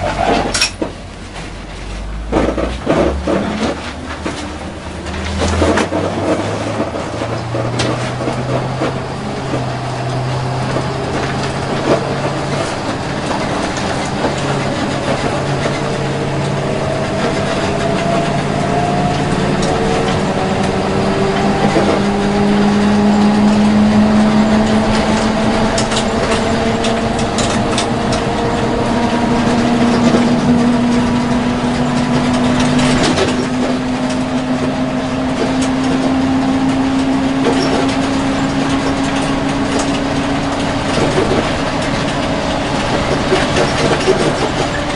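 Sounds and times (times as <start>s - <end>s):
bus engine running: 0.0s - 44.9s
rattles and knocks: 0.0s - 44.9s.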